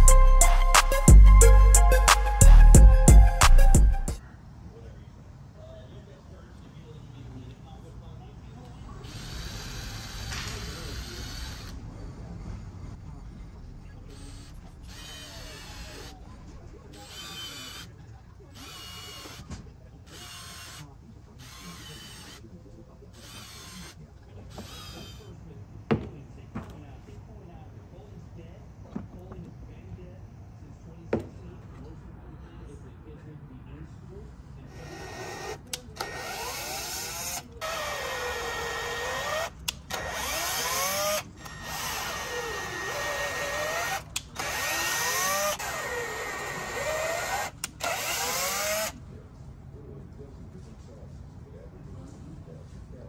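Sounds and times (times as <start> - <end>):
cordless impact driver: 9.0 - 11.8, 14.1 - 16.2, 16.9 - 17.9, 18.6 - 22.4, 23.2 - 25.4, 34.7 - 49.0.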